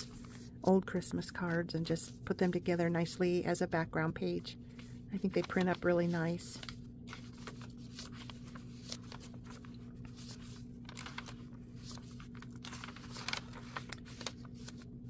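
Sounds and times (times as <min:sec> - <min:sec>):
paper pages rustling and flipping: 0:00.0 - 0:00.5, 0:04.7 - 0:15.0
steady low hum: 0:00.0 - 0:15.0.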